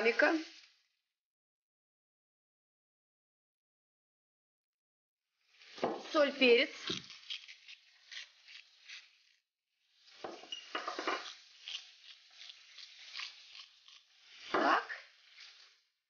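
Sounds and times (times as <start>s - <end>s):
pepper mill grinding: 6.8s - 9.2s, 10.2s - 15.7s.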